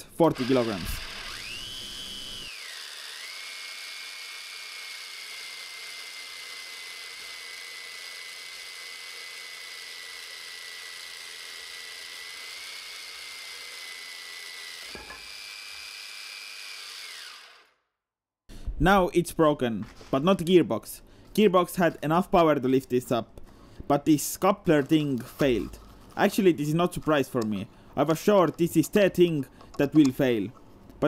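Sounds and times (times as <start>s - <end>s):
electric motor whining: 0.3s - 17.7s.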